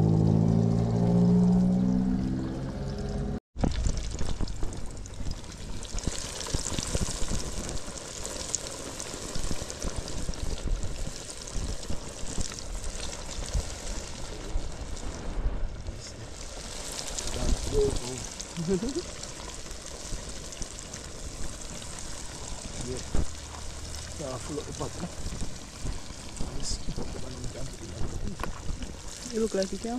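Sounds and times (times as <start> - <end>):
low rumble: 0.0 - 5.9, 14.4 - 29.9
chicken frying in hot oil: 3.6 - 29.9.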